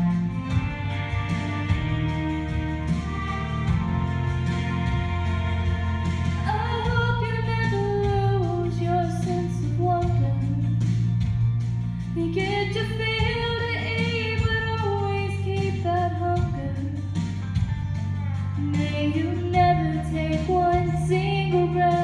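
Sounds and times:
instrumental accompaniment: 0.0s - 22.0s
woman singing country song: 6.3s - 11.0s, 12.2s - 17.2s, 18.6s - 22.0s.

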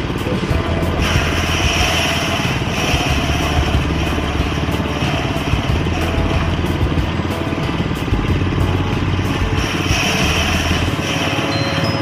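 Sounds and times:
small gasoline engine running: 0.0s - 12.0s
rushing hiss of grain stripping: 0.8s - 6.8s, 9.0s - 12.0s.

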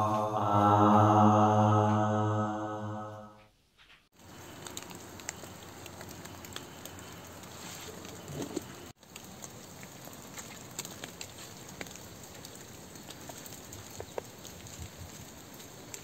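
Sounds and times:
small crackles and ticks: 4.1s - 16.0s.

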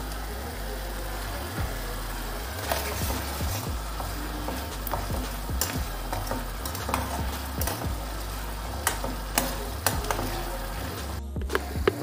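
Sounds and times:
gravy bubbling: 0.0s - 12.0s
steady low hum: 0.0s - 12.0s
spatula scraping a pan: 2.4s - 12.0s.

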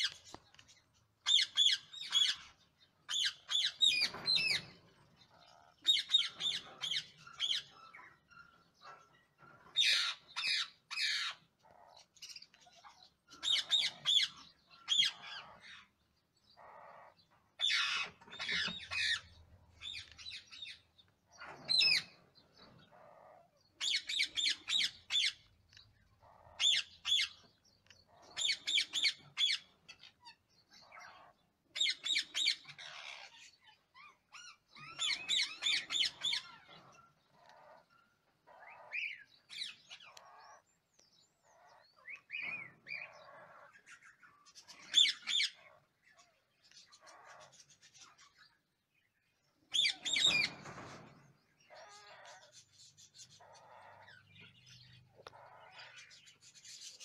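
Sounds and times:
parakeets calling: 0.0s - 57.0s.

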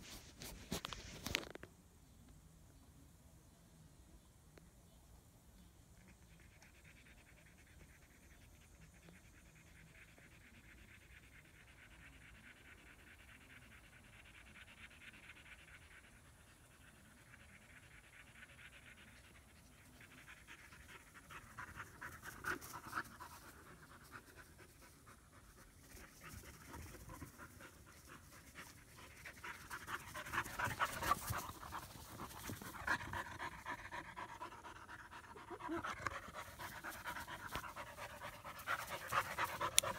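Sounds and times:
puppies panting: 16.6s - 39.9s.

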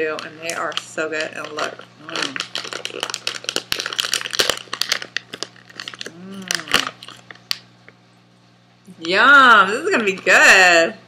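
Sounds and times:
plastic bag crinkling: 0.0s - 7.7s
person humming: 6.0s - 7.0s.

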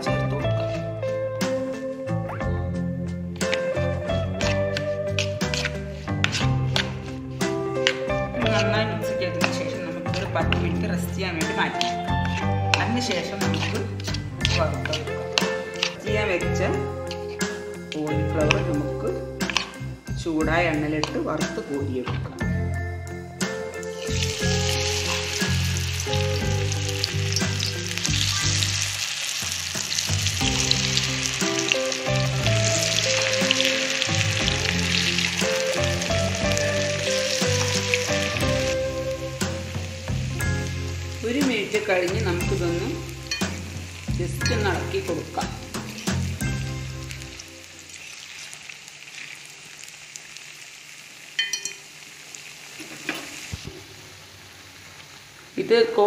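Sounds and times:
background music: 0.0s - 48.0s
oil sizzling with small pops: 3.4s - 8.8s, 11.4s - 16.1s, 19.4s - 19.9s, 23.8s - 44.6s, 45.4s - 55.7s
spatula metallic clink: 51.4s - 51.9s.

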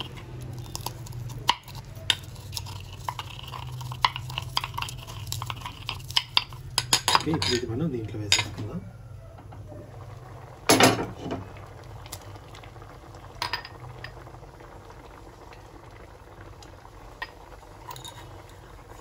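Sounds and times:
dal bubbling in a pan: 0.0s - 19.0s.

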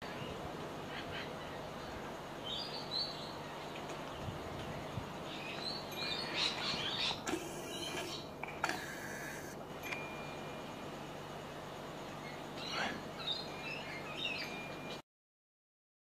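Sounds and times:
birds chirping: 0.0s - 9.6s, 12.0s - 15.0s
steady background hiss: 0.0s - 15.0s.

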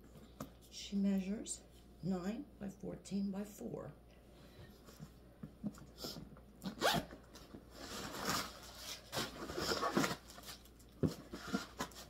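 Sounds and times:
zipper rasping open: 6.6s - 7.1s.

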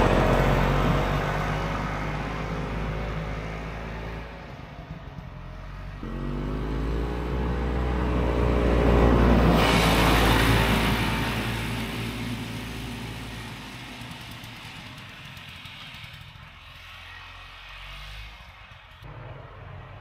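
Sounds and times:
snowmobile engine revving past: 5.8s - 19.7s.

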